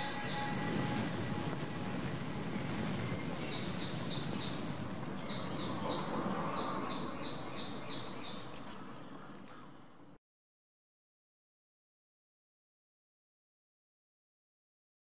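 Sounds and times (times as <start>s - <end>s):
steady background noise: 0.0s - 10.2s
small bird chirping: 5.2s - 9.6s.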